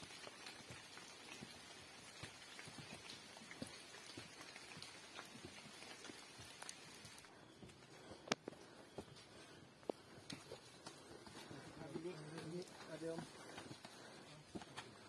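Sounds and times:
rain dripping: 0:00.0 - 0:07.4
footsteps on wet trail: 0:00.0 - 0:15.0.

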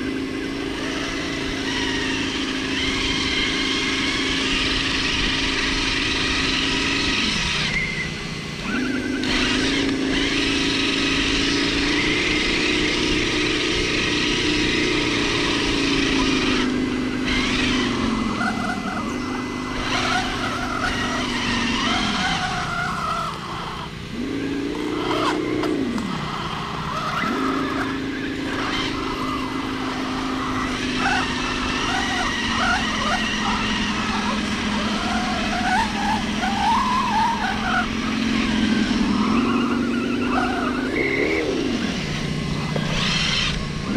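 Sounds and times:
toy truck electric motor whining: 0:00.0 - 0:43.9.

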